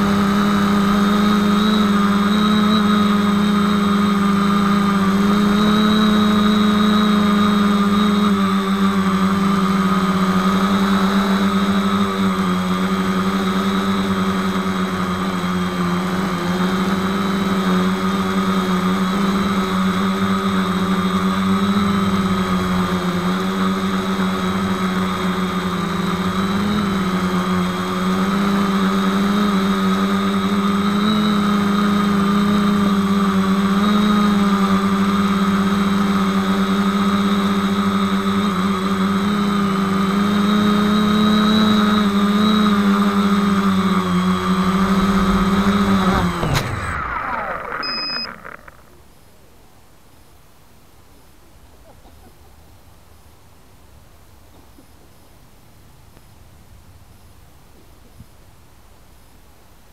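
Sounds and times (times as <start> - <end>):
drone motors humming and whining: 0.0 - 49.2.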